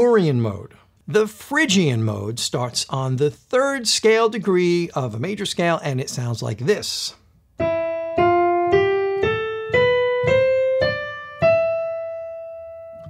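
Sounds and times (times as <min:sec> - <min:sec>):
piano ascending scale: 0:07.6 - 0:13.0.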